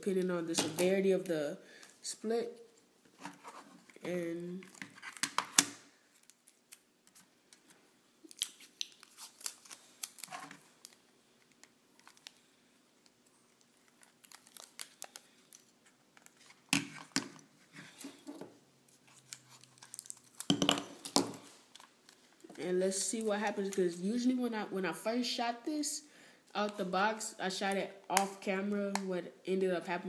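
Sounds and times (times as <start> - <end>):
adhesive tape crackling: 3.5 - 16.6, 17.4 - 23.9.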